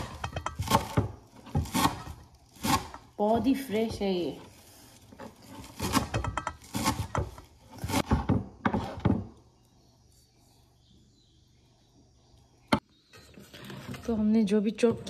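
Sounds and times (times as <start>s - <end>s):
knife chopping on wooden board: 0.0s - 3.0s, 5.7s - 9.3s.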